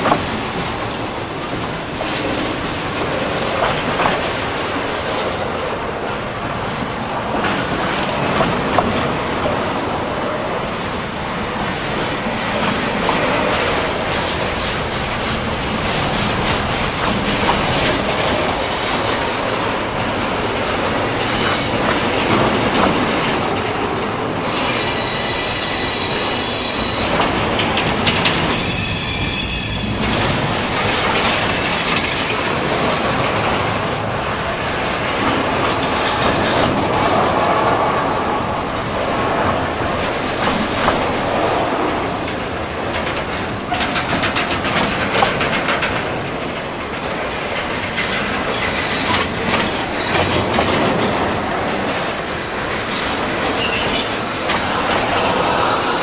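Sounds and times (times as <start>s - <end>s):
train wheels clattering over rails: 0.0s - 56.0s
high-pitched wheel squeal: 24.5s - 27.1s, 28.5s - 30.0s, 53.5s - 54.2s.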